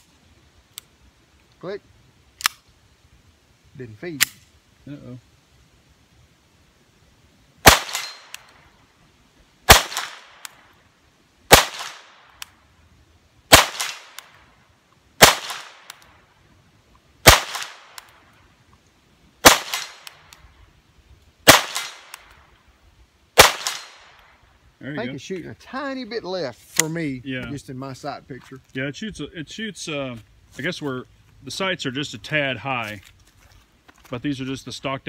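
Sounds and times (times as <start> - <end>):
pistol shots with echo: 7.6 - 8.4, 9.7 - 10.4, 11.5 - 12.2, 13.5 - 14.2, 15.2 - 15.9, 17.2 - 18.0, 19.4 - 20.1, 21.5 - 22.2, 23.4 - 24.1.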